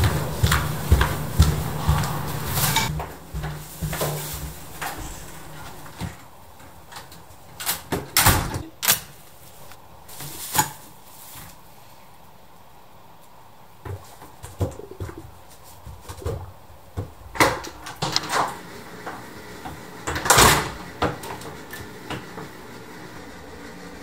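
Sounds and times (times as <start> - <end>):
brief scraping noise: 4.8 - 5.9.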